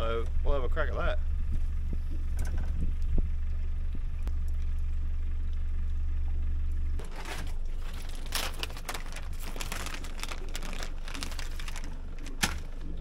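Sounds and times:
low rumble: 0:00.0 - 0:13.0
plastic bag crinkling: 0:07.0 - 0:13.0.

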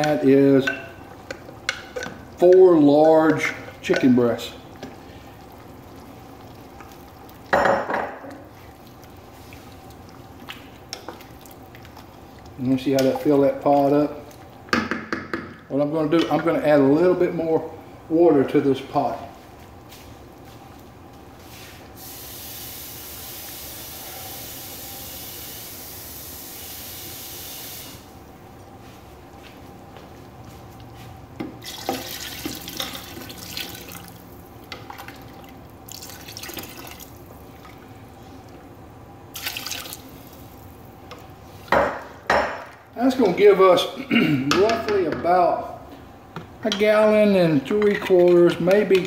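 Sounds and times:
wooden spoon stirring in pot: 0:00.0 - 0:07.5, 0:08.2 - 0:16.7, 0:28.6 - 0:42.3
faint steady hiss: 0:15.7 - 0:30.8
faucet water running into pitcher: 0:31.6 - 0:37.8, 0:39.3 - 0:40.4.

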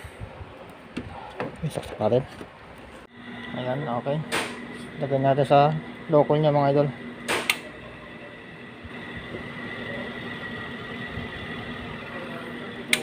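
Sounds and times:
air conditioner humming: 0:00.0 - 0:13.0.

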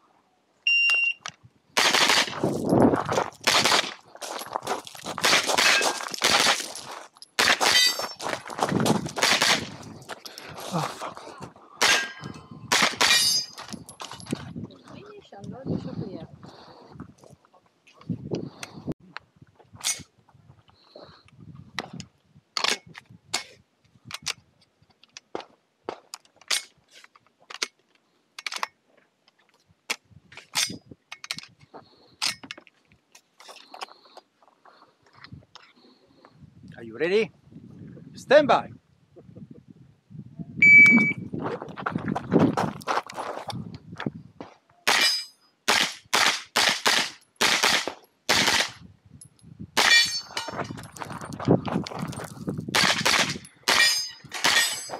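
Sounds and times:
high ringing tone: 0:00.7 - 0:01.2, 0:40.6 - 0:41.3
carbine gunshots: 0:01.8 - 0:02.4, 0:03.5 - 0:04.0, 0:09.2 - 0:09.7, 0:45.7 - 0:48.8, 0:52.8 - 0:54.8.

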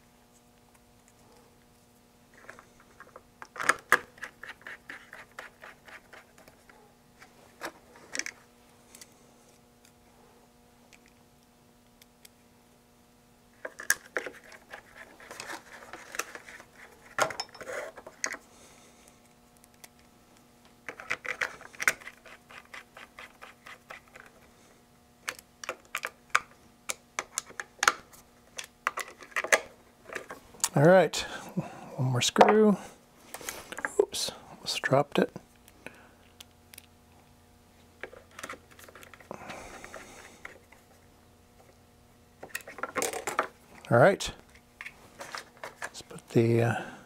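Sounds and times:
screwdriver clicking and scraping: 0:20.9 - 0:24.4.

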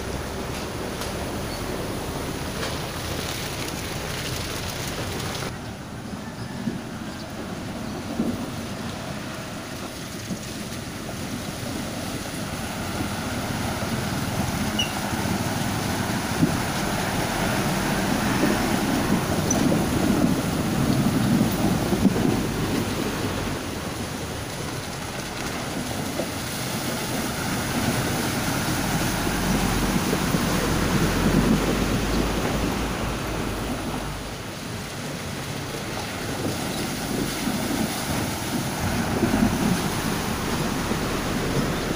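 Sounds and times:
water sloshing and splashing: 0:00.0 - 0:05.5, 0:08.0 - 0:41.9
vehicle engines running: 0:00.0 - 0:41.9.

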